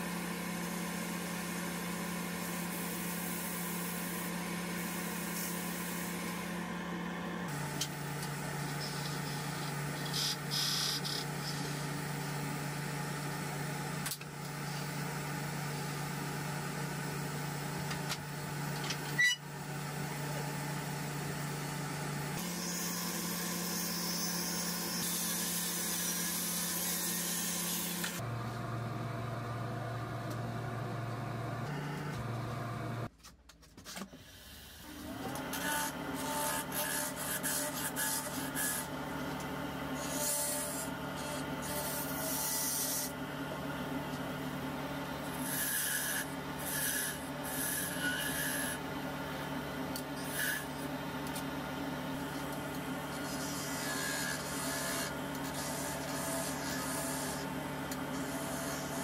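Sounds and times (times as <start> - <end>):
sandpaper hissing on spinning wood: 8.6 - 11.9
wood lathe motor hum: 35.2 - 59.0.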